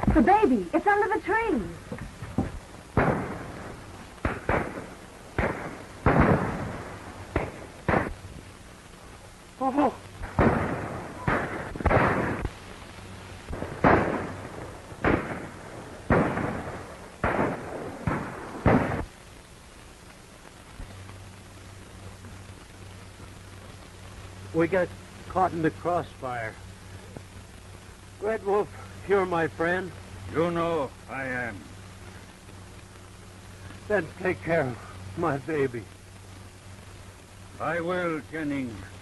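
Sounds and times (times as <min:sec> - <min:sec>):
sharp gunshots: 0:02.4 - 0:08.2, 0:10.2 - 0:12.7, 0:13.5 - 0:19.1.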